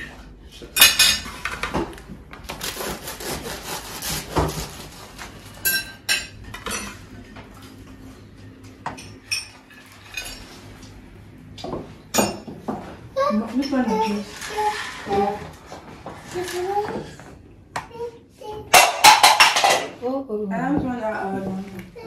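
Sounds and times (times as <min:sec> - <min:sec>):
cutlery scraping on plates: 0:00.0 - 0:01.8, 0:02.6 - 0:07.7, 0:08.9 - 0:10.9, 0:13.6 - 0:17.2, 0:18.7 - 0:20.0.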